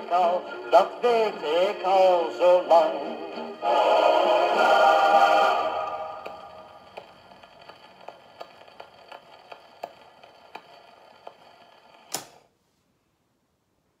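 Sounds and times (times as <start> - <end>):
record surface hiss: 0.0 - 14.0
record run-out groove clicks: 6.2 - 12.3.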